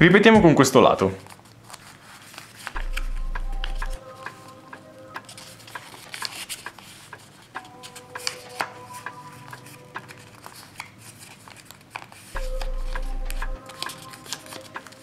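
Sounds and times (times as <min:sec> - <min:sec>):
paper rustling and crackling: 0:00.9 - 0:02.8, 0:05.2 - 0:12.7, 0:13.6 - 0:15.0
low electrical hum: 0:02.5 - 0:05.2.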